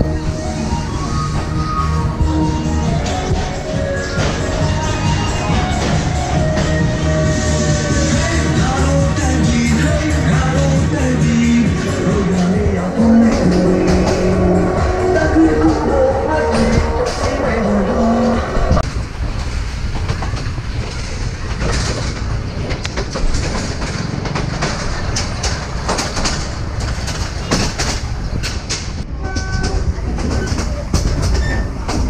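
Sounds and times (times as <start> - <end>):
music: 0.0 - 17.5
train carriage rumbling: 0.0 - 32.0
train clacks and rattles: 0.0 - 32.0.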